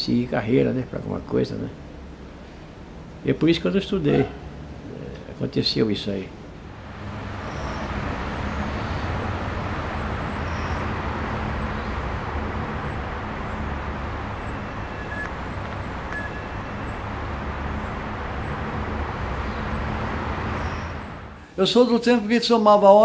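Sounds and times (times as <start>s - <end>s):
low rumble and hiss: 0.0s - 23.0s
small birds chirping: 7.0s - 22.0s.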